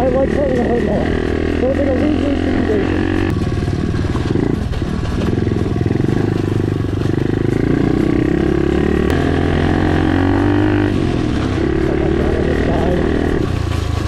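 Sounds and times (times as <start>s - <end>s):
small motorcycle engine running: 0.0s - 14.0s.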